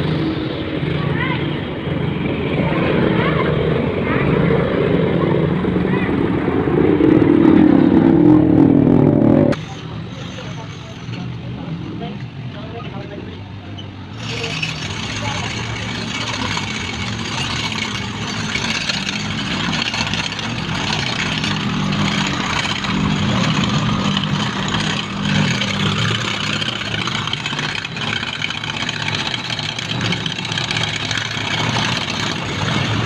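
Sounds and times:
vehicle engine running at low revs: 0.0 - 10.7
street traffic noise: 0.0 - 33.0.

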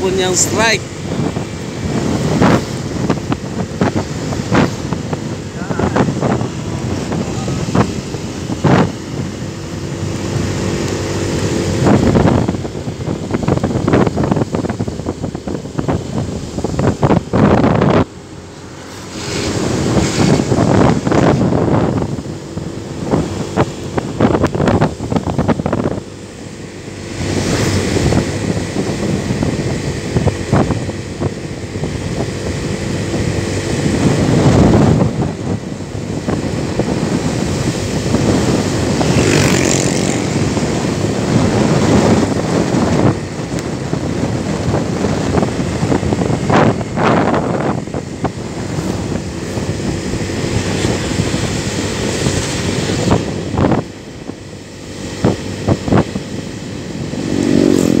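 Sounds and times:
vehicle engine running: 0.0 - 58.0
wind buffeting microphone: 0.0 - 58.0.

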